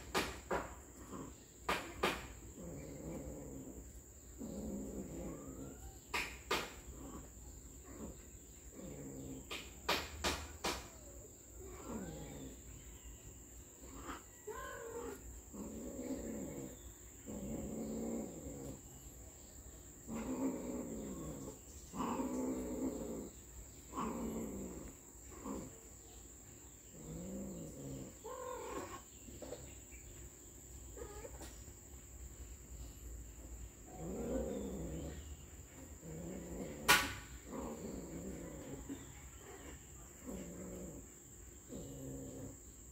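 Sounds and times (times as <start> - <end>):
cats yowling: 4.4 - 7.3, 13.8 - 16.7, 27.0 - 29.6, 31.0 - 31.5.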